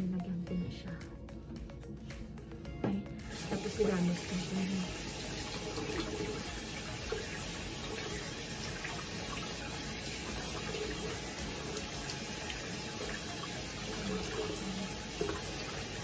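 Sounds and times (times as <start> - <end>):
sink tap running: 2.9 - 16.0
water splashing: 3.3 - 16.0.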